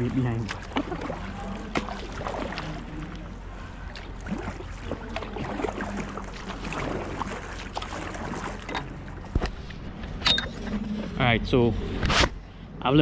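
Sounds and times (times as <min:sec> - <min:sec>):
water splashing and dripping: 0:00.0 - 0:09.6
low steady hum: 0:00.0 - 0:13.0.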